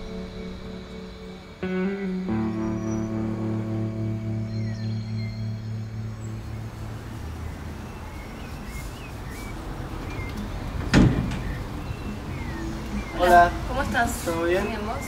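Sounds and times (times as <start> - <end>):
guitar music: 0.0 - 8.8, 11.4 - 15.0
bird chirps: 0.0 - 15.0
distant traffic rumble: 0.0 - 15.0
loud thump: 10.9 - 11.6.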